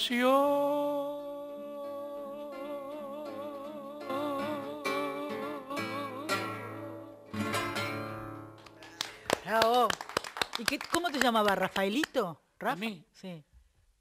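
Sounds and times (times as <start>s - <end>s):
man singing with vibrato: 0.0s - 8.0s
classical guitar: 0.3s - 8.9s.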